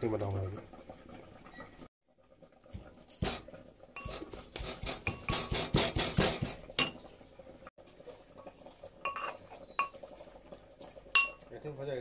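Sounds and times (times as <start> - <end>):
metal pestle pounding in mortar: 4.0 - 6.6.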